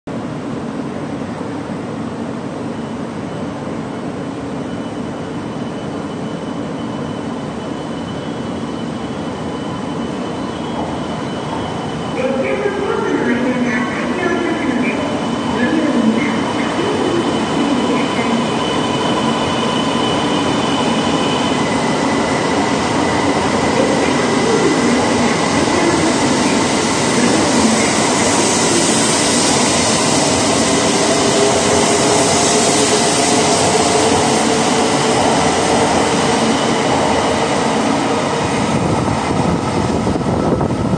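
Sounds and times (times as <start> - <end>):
train whine rising in pitch: 14.0 - 40.9
train wheels rushing: 14.6 - 40.9.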